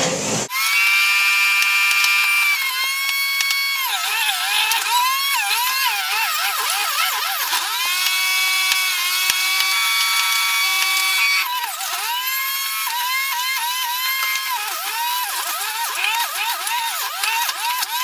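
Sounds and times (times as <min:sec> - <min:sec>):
juicer motor whining: 0:00.5 - 0:18.0.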